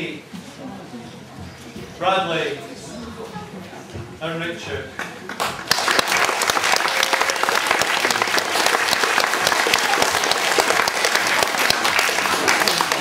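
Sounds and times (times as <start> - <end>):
audience applauding: 5.0 - 13.0.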